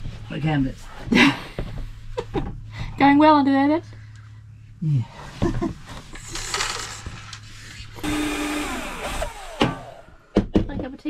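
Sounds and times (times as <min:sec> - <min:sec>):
electric power tool motor: 0:06.2 - 0:10.3.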